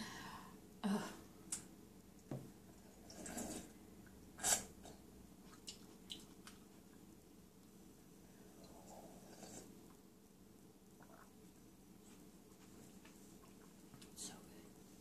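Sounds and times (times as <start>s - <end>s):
sipping and slurping broth: 3.0s - 3.8s, 8.6s - 9.8s.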